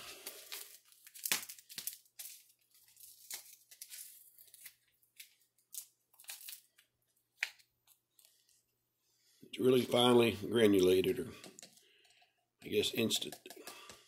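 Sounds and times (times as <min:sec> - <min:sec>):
foil packet crinkling and tearing: 0:00.0 - 0:08.5.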